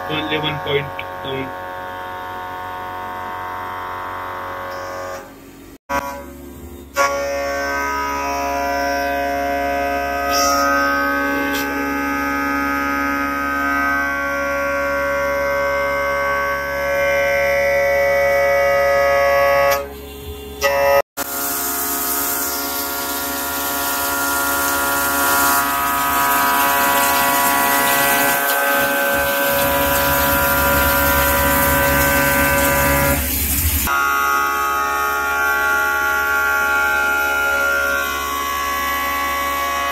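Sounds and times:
coolant spraying hiss: 0:21.3 - 0:33.9
milling machine spindle whine: 0:21.8 - 0:39.9.

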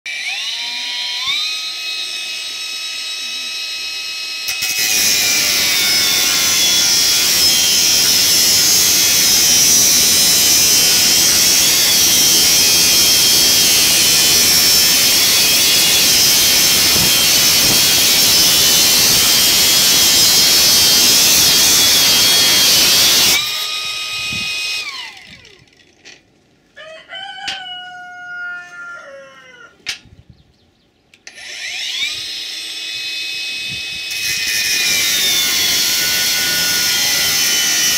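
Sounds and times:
angle grinder cutting steel: 0:00.1 - 0:25.7, 0:31.2 - 0:37.9
rooster crowing: 0:26.8 - 0:29.9.

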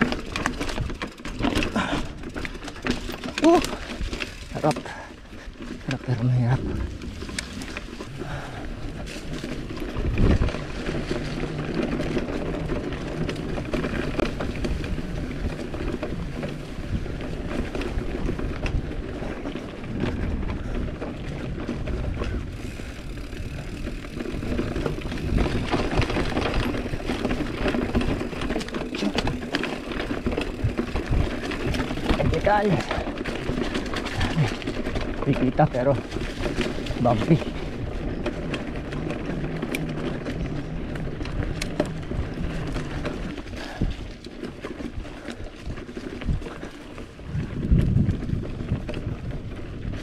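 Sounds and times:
bike rattling: 0:00.0 - 0:50.0
bike tyres rolling on dirt: 0:00.0 - 0:50.0.

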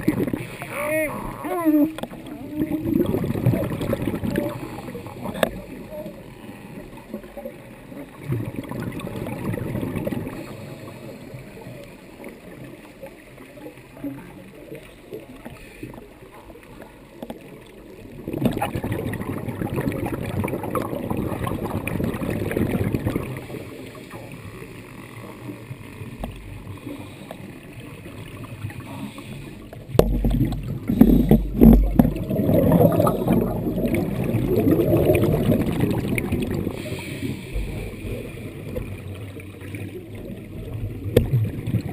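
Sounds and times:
underwater bubbles rushing: 0:00.0 - 0:41.9
diver breathing: 0:26.7 - 0:27.7, 0:28.8 - 0:29.8, 0:30.8 - 0:31.8, 0:36.7 - 0:38.6.

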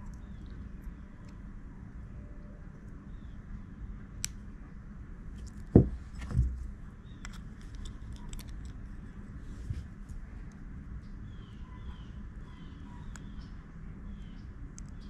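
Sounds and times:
low steady hum: 0:00.0 - 0:15.0
dull knock: 0:05.7 - 0:06.6.

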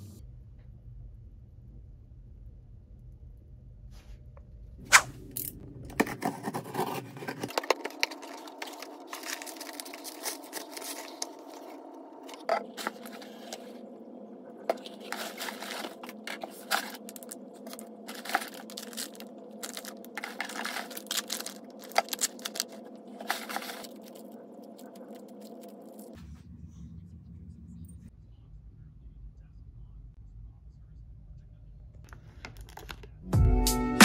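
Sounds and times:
packaging crinkling: 0:05.0 - 0:26.2.

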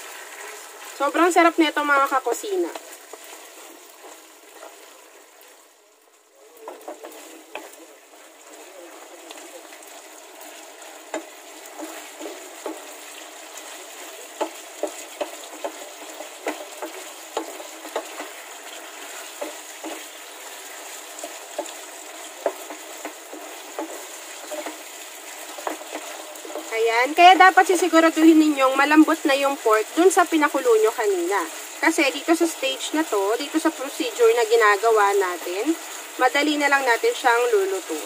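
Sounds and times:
meat sizzling in a frying pan: 0:00.0 - 0:38.0
wooden spoon knocking on a pan: 0:06.6 - 0:07.8, 0:11.1 - 0:13.0, 0:14.0 - 0:20.6, 0:21.2 - 0:26.7.

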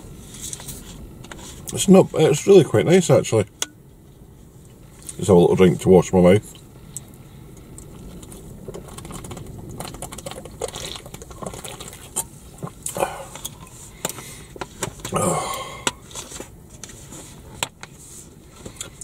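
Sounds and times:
man swallowing: 0:10.3 - 0:13.7, 0:15.0 - 0:16.0
breath out: 0:12.9 - 0:16.0.

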